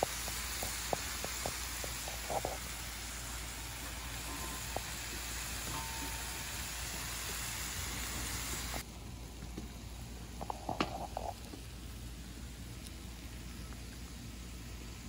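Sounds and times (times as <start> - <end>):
food sizzling on a griddle: 0.0 - 8.8.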